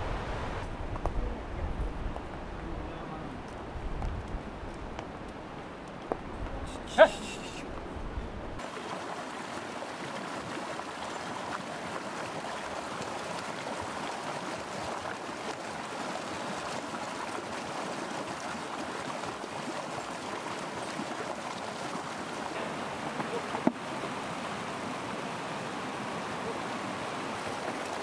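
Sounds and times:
river rushing over rocks: 8.6 - 28.0.

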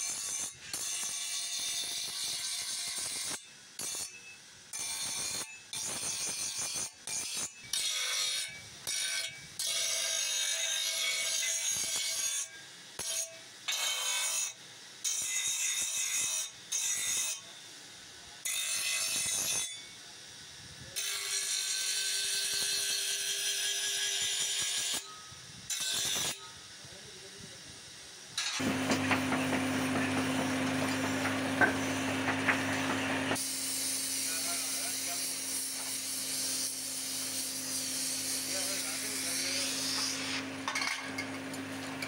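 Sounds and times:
gas torch flame hissing: 24.2 - 42.0
grinding wheel rasping on metal: 28.6 - 42.0.

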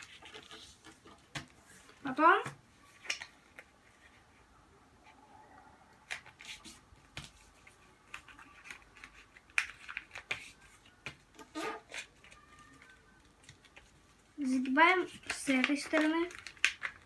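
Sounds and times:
paper rustling and crackling: 0.0 - 2.1, 6.0 - 17.0.

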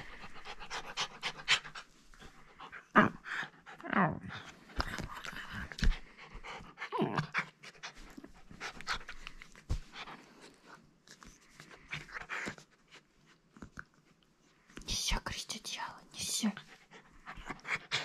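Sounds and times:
puppy panting: 0.0 - 10.8, 16.5 - 18.0.

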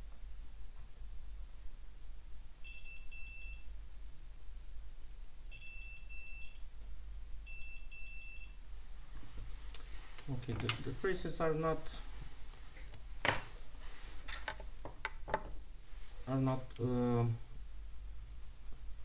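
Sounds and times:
multimeter short high beeps: 2.6 - 3.7, 5.5 - 6.6, 7.5 - 8.6.

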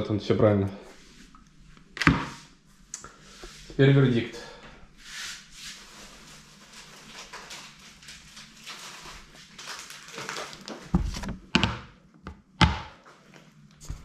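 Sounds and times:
cardboard and paper rustling: 5.8 - 11.4.

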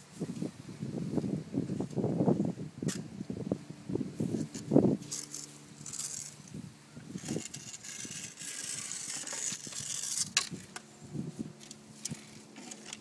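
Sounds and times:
sand scraped with toy tool: 4.2 - 10.7.

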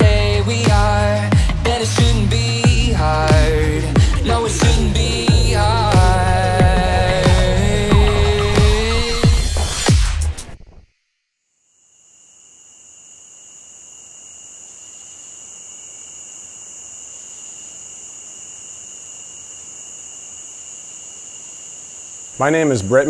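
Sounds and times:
background music: 0.0 - 10.5
insect chorus: 11.6 - 23.0.

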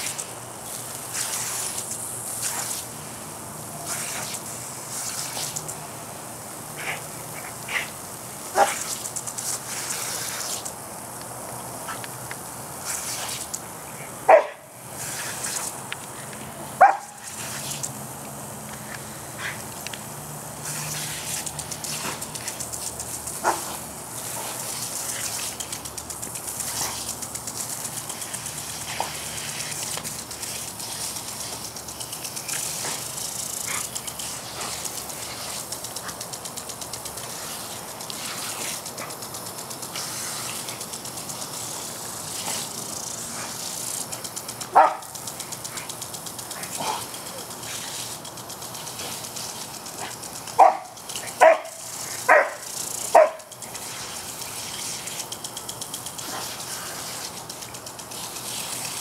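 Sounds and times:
sprinkler water hissing: 0.0 - 59.0
dog barking: 14.3 - 14.7, 16.8 - 17.2, 44.7 - 45.1, 50.6 - 53.5.

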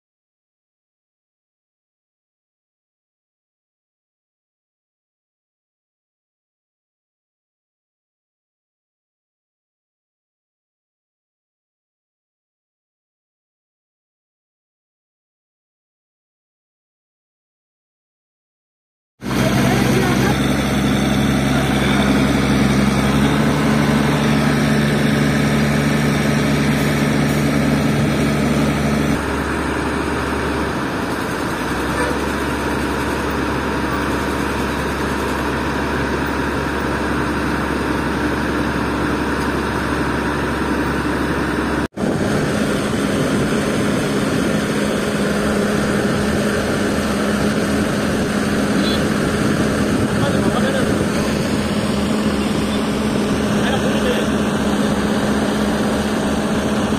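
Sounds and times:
crane diesel engine running: 19.2 - 56.9.

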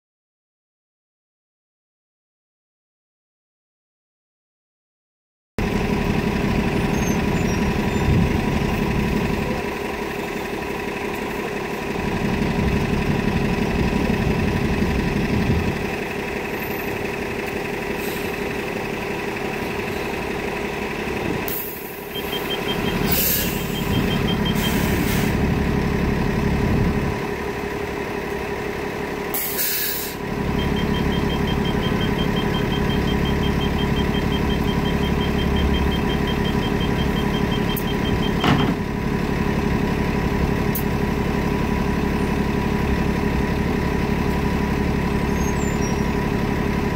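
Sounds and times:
bus engine idling: 5.6 - 46.9
high-pitched warning beep: 22.1 - 24.9, 30.5 - 38.6
air brake hisses: 23.0 - 25.4, 29.3 - 30.2.

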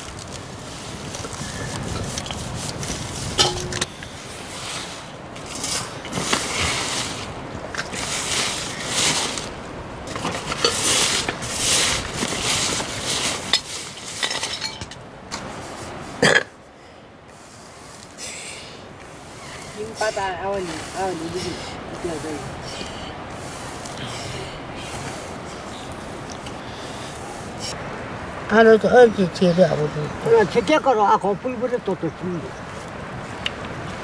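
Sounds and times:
clinks on steel plate: 3.4 - 3.9
stone quern grinding: 19.1 - 24.4.

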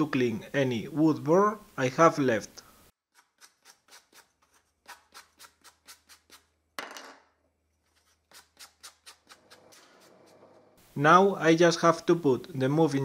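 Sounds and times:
sanding block strokes on wood: 7.9 - 10.7.

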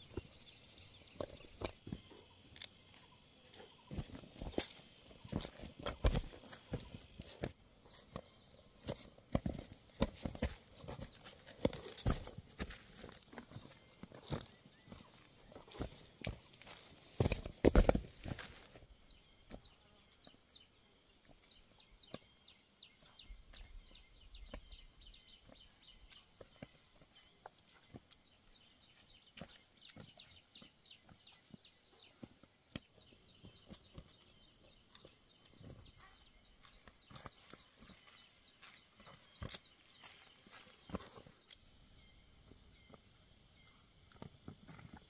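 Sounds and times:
footsteps on dry earth: 0.0 - 45.0
granules dropping onto soil: 3.9 - 7.6, 15.7 - 18.8.

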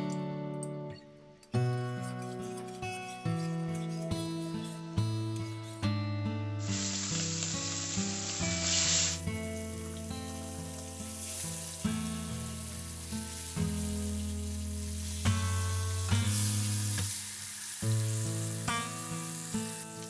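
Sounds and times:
soft background music: 0.0 - 20.0
fish sizzling in hot oil: 4.0 - 20.0.

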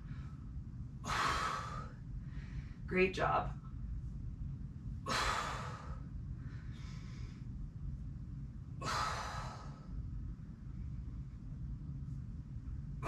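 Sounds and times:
woman exhaling hard: 1.0 - 1.9, 5.1 - 6.0, 8.8 - 9.8.

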